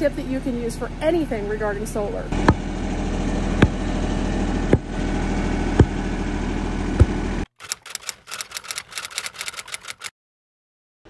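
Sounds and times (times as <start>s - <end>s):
engine drone: 0.2s - 10.1s
tamper thumping dirt: 7.0s - 7.3s
typewriter keys clicking: 7.6s - 10.1s.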